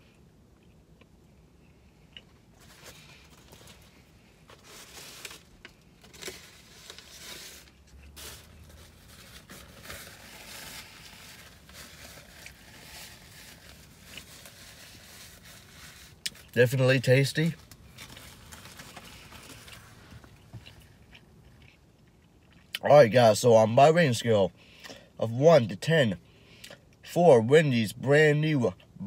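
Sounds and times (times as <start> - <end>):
paper wrapper rustling: 2.6 - 20.5.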